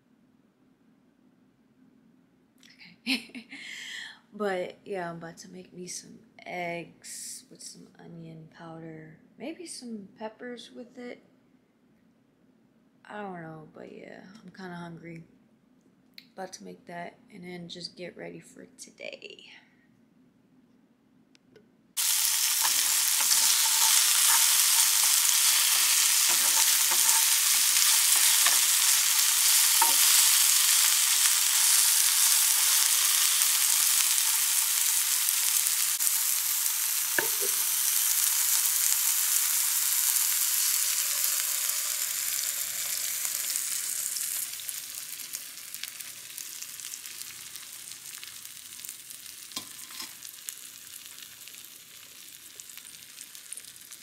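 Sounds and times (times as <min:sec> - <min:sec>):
eggs sizzling in a frying pan: 0:22.0 - 0:54.0
utensil clicking against pan: 0:22.2 - 0:30.2.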